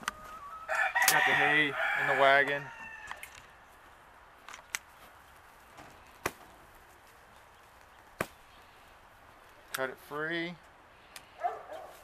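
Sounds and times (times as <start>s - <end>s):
twine snapping: 5.7s - 6.8s.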